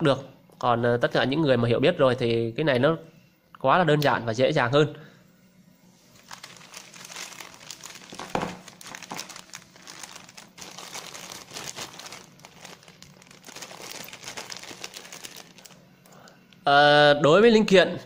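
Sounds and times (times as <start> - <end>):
plastic bag crinkling: 6.1 - 15.8.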